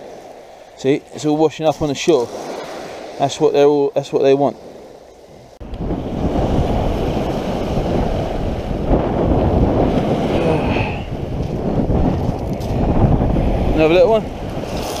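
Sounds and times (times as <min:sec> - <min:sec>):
wind buffeting microphone: 0:05.3 - 0:15.0.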